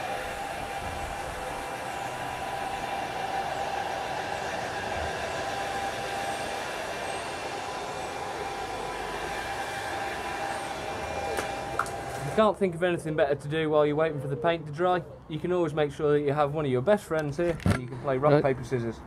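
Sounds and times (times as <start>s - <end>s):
hair dryer blowing air: 0.0s - 12.6s.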